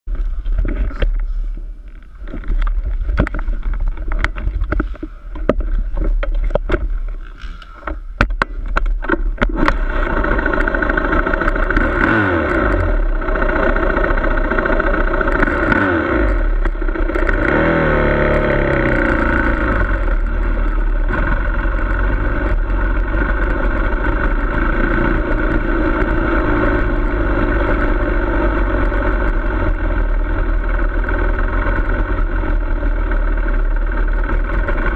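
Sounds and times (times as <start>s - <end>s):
engine knocks and clatter: 0.1s - 34.9s
dirt bike engine revving: 9.4s - 34.9s.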